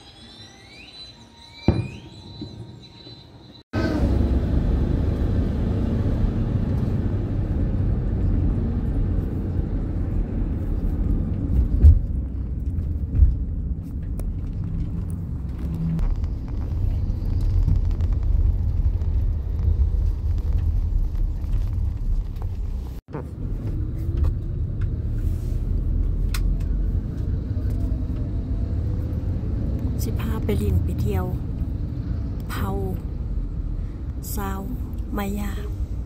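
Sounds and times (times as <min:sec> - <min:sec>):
faint high chirping: 0:00.0 - 0:03.6
vehicle rumble on highway: 0:03.7 - 0:36.0.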